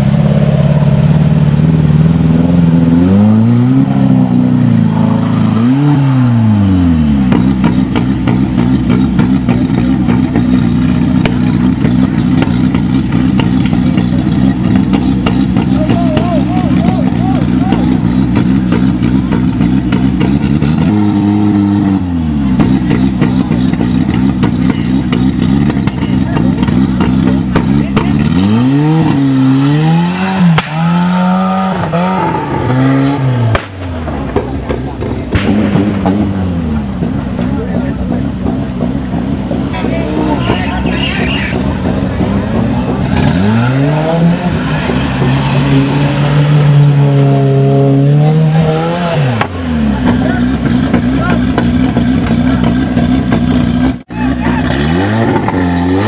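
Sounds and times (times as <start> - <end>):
buggy engine revving: 0.0 - 56.0
driving through muddy water: 0.0 - 56.0
sharp knock: 33.5 - 36.5.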